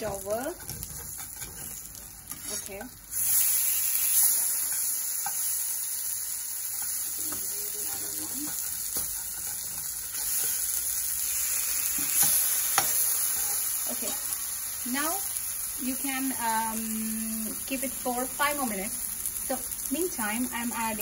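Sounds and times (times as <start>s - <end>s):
fish sizzling in a frying pan: 0.0s - 21.0s
spatula scraping a pan: 0.1s - 5.6s, 6.7s - 10.8s, 11.9s - 14.3s.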